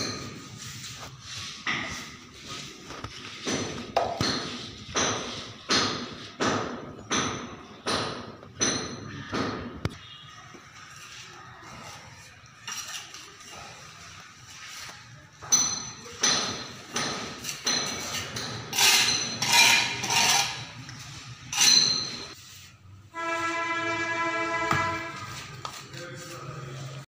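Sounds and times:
trowel scraping wet plaster: 16.7s - 22.8s.

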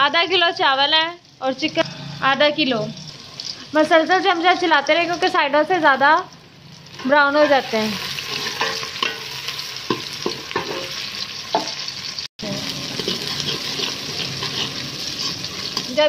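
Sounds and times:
onions sizzling in ghee: 0.0s - 16.0s
metal ladle scraping pot: 6.9s - 11.7s, 12.8s - 16.0s.

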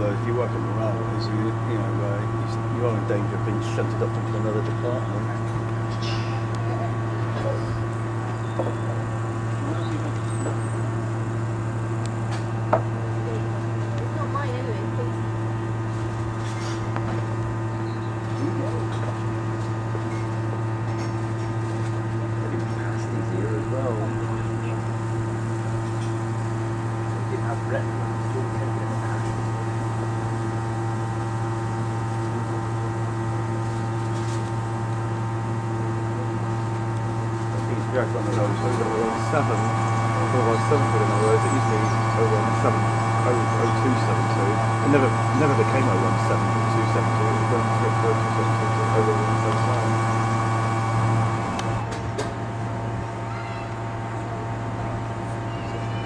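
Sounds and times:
high drone: 0.0s - 15.1s, 22.3s - 33.5s, 35.6s - 52.0s
low mechanical hum: 0.0s - 56.0s.

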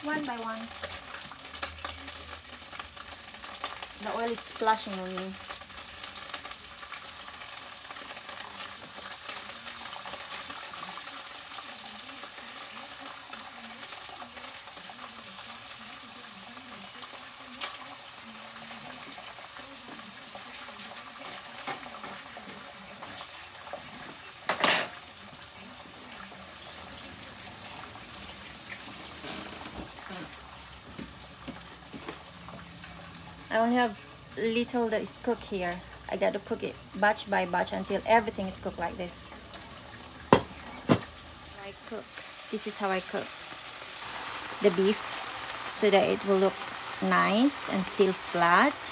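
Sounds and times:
meat sizzling in oil: 0.0s - 48.9s.

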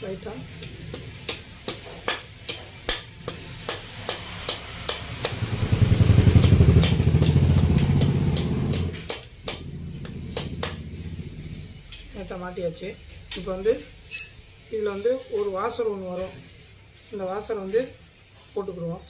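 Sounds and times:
passing motorcycle engine: 4.6s - 12.0s.

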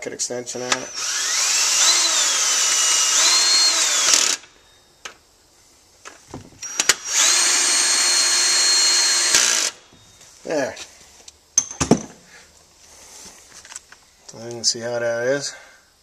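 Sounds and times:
power drill motor whining: 0.6s - 4.6s, 6.6s - 10.2s.

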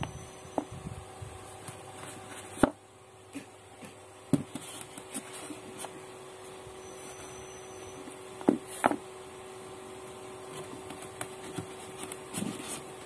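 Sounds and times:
steady faint hum: 0.0s - 13.0s.

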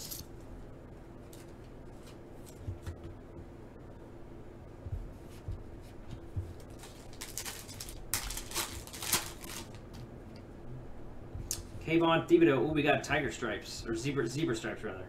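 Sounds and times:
faint steady hum: 0.0s - 15.0s
foil wrapper crinkling and tearing: 6.6s - 10.0s.

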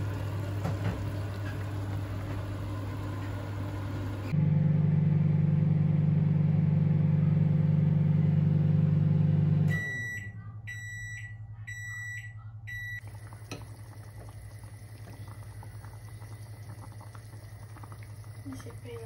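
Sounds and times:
pot bubbling: 0.0s - 4.4s, 13.0s - 19.0s
microwave oven humming: 0.0s - 19.0s
microwave beeps: 7.7s - 14.2s.

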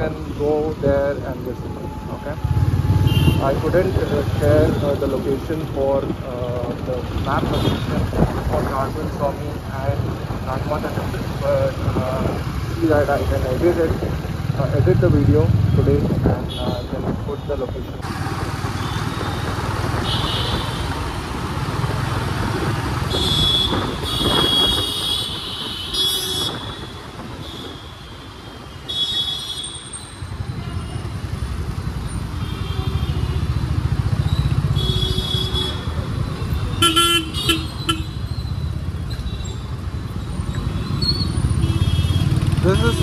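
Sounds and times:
motorcycle engine: 1.9s - 7.8s, 18.0s - 27.6s, 40.3s - 43.0s
vehicle horns honking: 2.5s - 3.6s, 20.0s - 20.8s, 23.1s - 29.9s, 32.3s - 33.5s, 34.6s - 38.3s, 40.8s - 43.0s.

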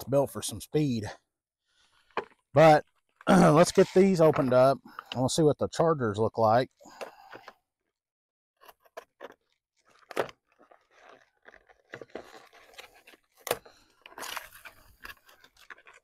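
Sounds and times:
packaging rustling and crinkling: 8.7s - 16.0s.

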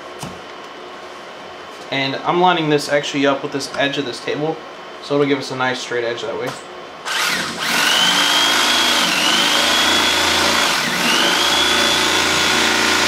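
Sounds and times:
electric knife cutting foam: 7.1s - 13.0s.

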